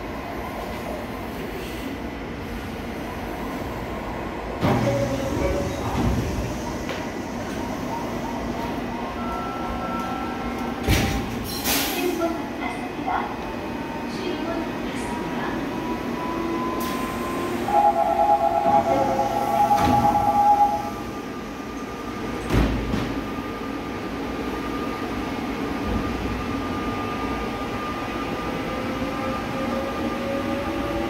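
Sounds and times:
two-tone door warning buzzer: 17.7 - 20.9.

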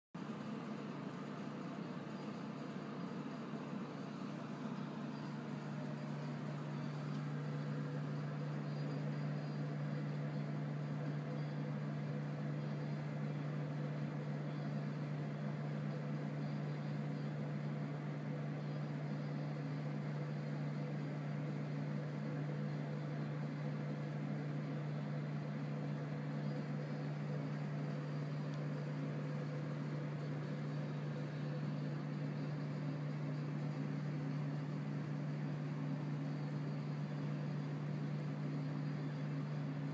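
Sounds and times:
low mechanical hum with hiss: 0.2 - 39.9.

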